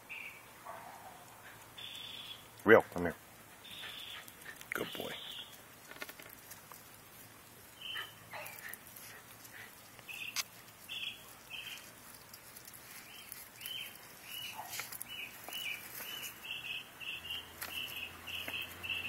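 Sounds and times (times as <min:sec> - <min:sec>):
bird chirping: 0:00.0 - 0:00.5, 0:01.8 - 0:02.6, 0:03.6 - 0:05.6, 0:07.7 - 0:08.8, 0:09.8 - 0:19.0.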